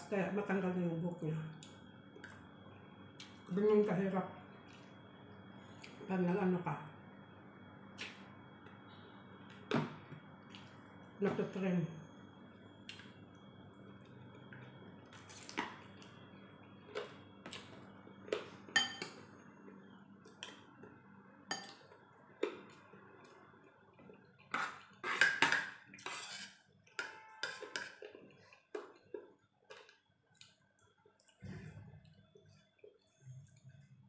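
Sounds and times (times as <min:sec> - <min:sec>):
metal spoon clinking on plate: 0:18.8 - 0:19.2.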